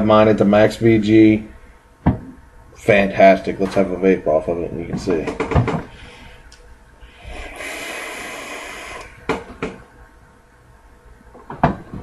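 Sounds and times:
vape coil hissing: 7.2s - 9.2s.

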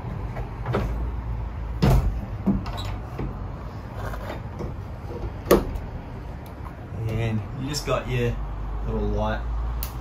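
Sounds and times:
low outdoor rumble: 0.0s - 10.0s.

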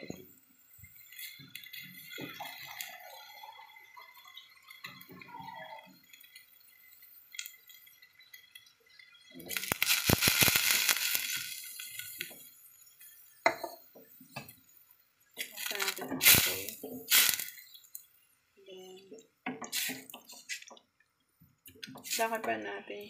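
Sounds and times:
water pouring into a pot: 0.7s - 18.1s.

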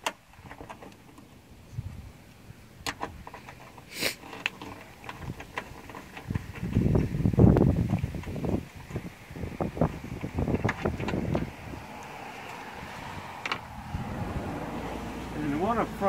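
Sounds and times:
wind rumble on microphone: 0.3s - 3.6s, 4.6s - 16.0s
metal scrape: 3.2s - 6.9s.

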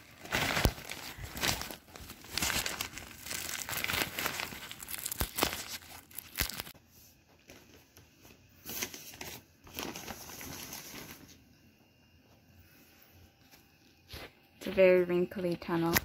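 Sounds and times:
fabric tunnel rustling and crinkling: 0.0s - 6.7s.

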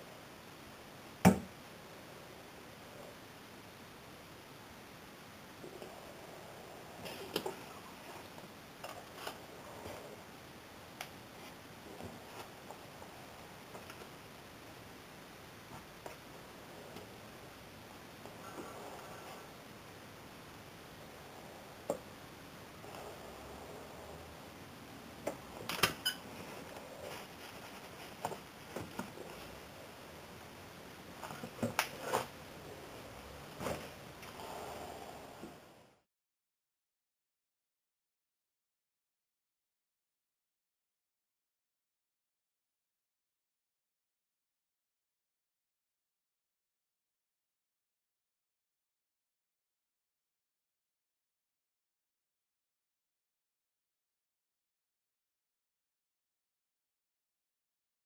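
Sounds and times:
faint rustling: 25.4s - 30.1s.

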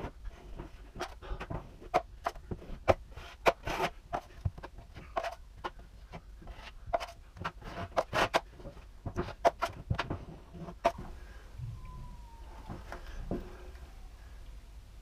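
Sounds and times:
knife scraping drywall: 0.0s - 11.0s.

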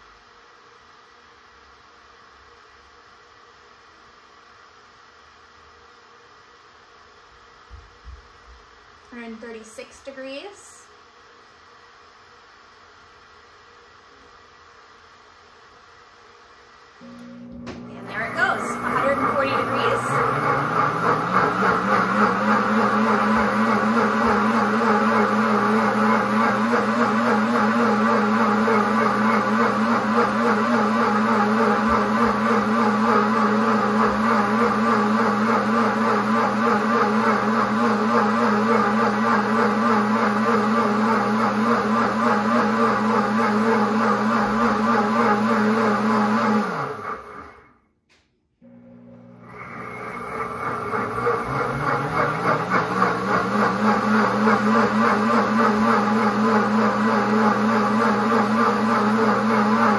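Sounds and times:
blender motor running: 17.0s - 47.7s, 48.6s - 59.9s.

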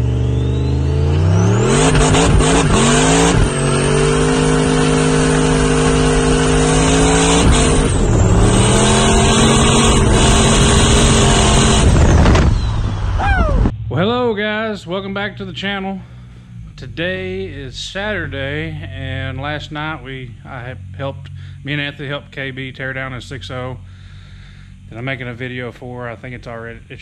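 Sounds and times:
engine revving at high revs: 0.0s - 13.1s.

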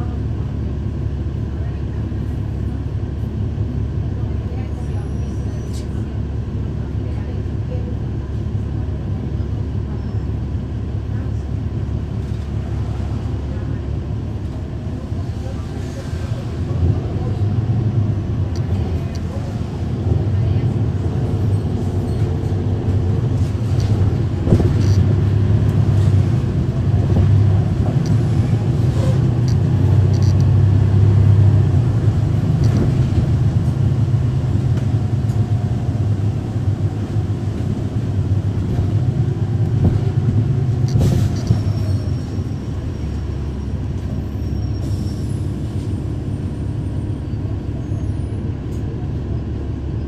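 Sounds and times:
bus diesel engine rumble: 0.0s - 50.0s.

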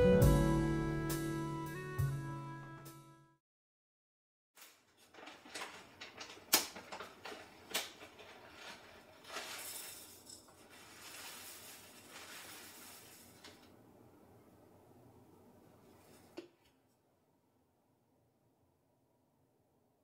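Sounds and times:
bag crinkling and rustling: 4.6s - 13.7s
dry oats pouring into bowl: 8.2s - 13.6s.

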